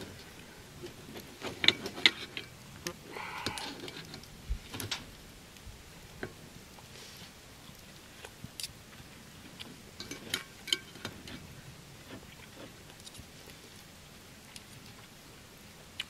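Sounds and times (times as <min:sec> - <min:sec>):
eating utensils clinking: 0:10.0 - 0:11.5.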